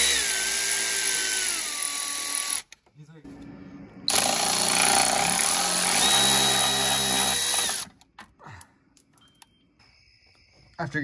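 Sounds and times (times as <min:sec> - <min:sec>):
electric ratchet running: 0:00.0 - 0:02.7, 0:04.1 - 0:07.9.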